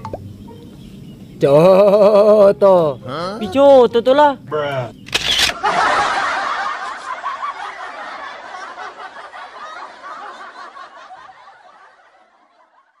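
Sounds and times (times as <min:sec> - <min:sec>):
people laughing: 0:01.6 - 0:02.5, 0:05.5 - 0:13.0.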